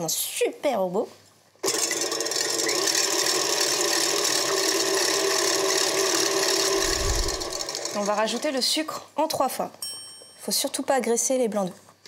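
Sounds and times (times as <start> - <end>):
stand mixer motor whirring: 1.6 - 8.3
whisk beating egg whites: 1.9 - 8.6.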